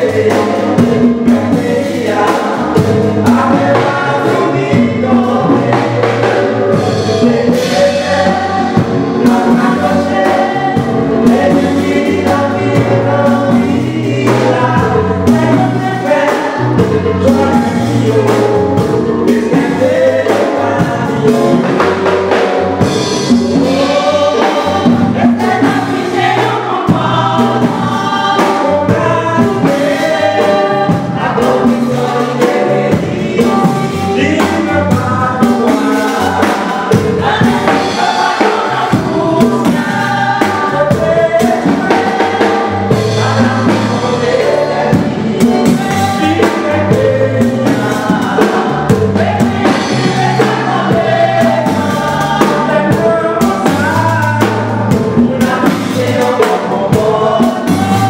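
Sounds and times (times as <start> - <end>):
band with bass and drums: 0.0 - 58.0
gospel choir singing: 0.0 - 58.0
man singing lead: 0.0 - 58.0.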